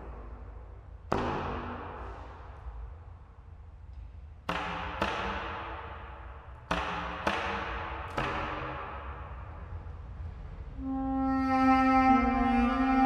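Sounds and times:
long hall echo: 0.0s - 13.0s
contrabass clarinet percussive notes: 10.8s - 13.0s.

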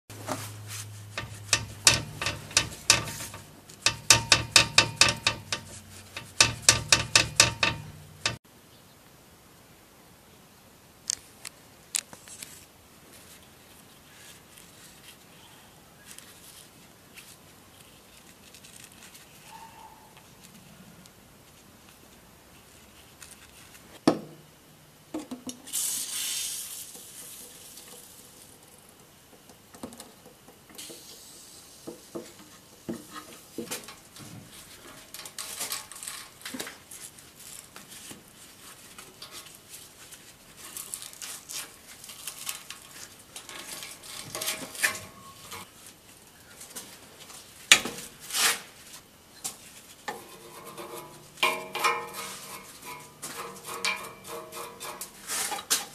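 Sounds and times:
hand tools clinking on metal: 1.0s - 8.4s, 51.2s - 55.9s.

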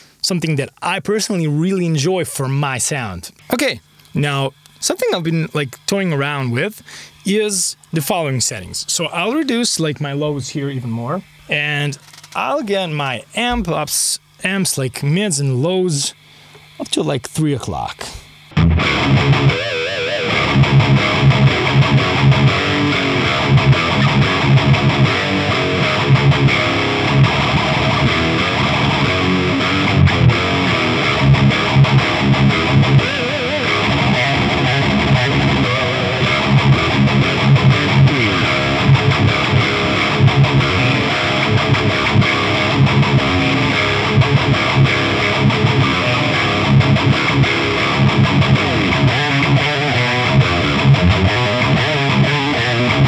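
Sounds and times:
distorted electric guitar riffing: 12.4s - 14.2s, 18.0s - 53.0s.

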